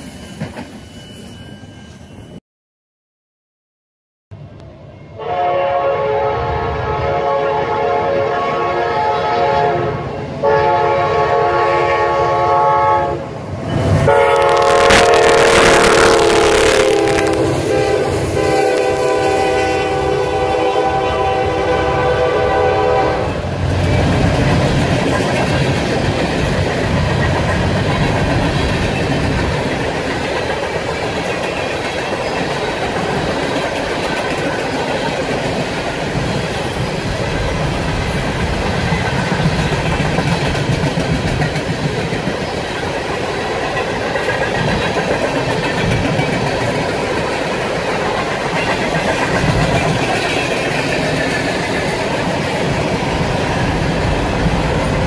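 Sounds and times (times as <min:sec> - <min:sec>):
locomotive air horn: 0:05.2 - 0:13.2, 0:14.0 - 0:23.4
train wheels rumbling and clacking: 0:13.5 - 0:55.0.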